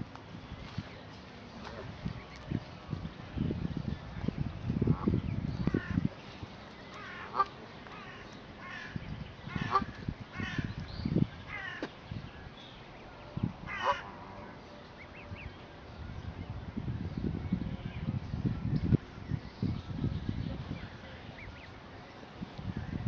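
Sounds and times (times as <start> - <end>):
geese calling: 6.9 - 10.7, 13.7 - 15.3.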